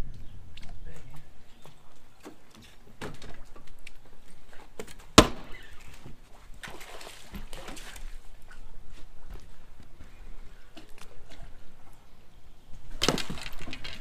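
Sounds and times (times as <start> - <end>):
fish splashing water: 5.4 - 8.2.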